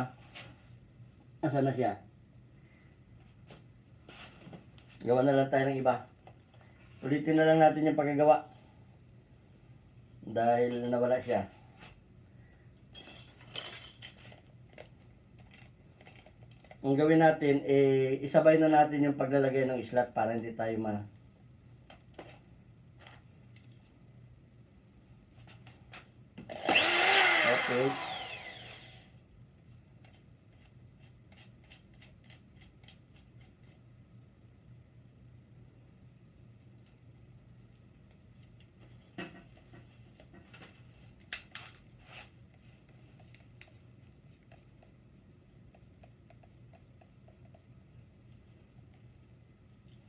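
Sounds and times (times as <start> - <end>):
low steady hum: 0.0 - 50.0
faint ticking of turning chuck: 42.5 - 49.2.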